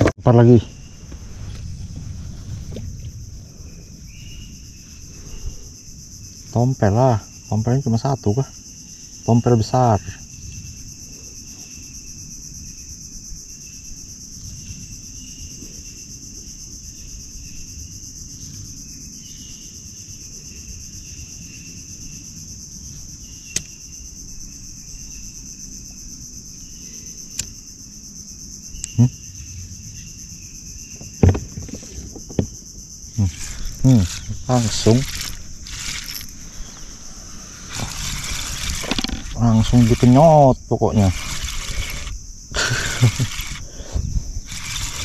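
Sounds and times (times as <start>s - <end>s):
wind rumble: 0.0s - 7.5s, 30.9s - 45.0s
insects chorus: 0.0s - 45.0s
short low knocks: 31.0s - 32.7s
sharp clicks: 33.2s - 36.4s, 37.7s - 40.3s, 40.9s - 43.7s.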